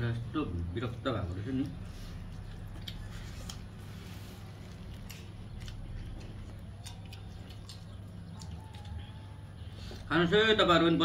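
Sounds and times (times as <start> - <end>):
chewing and lip-smacking: 1.3 - 10.1.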